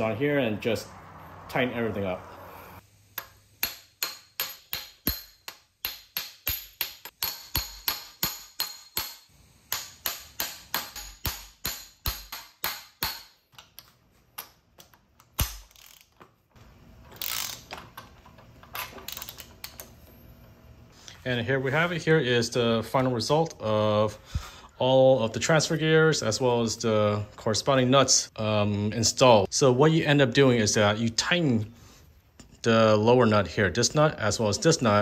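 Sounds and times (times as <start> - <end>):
ratchet wrench clicking: 15.3 - 16.2, 17.1 - 17.8, 19.0 - 19.9.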